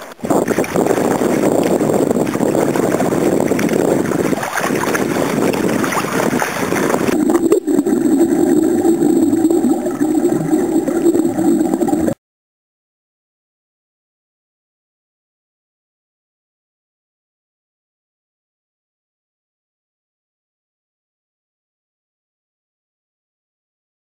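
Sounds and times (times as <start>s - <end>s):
muffled underwater rush: 0.0s - 12.2s
water splashing: 0.0s - 12.2s
wind on microphone: 0.0s - 12.2s
steady low drone: 7.1s - 12.2s.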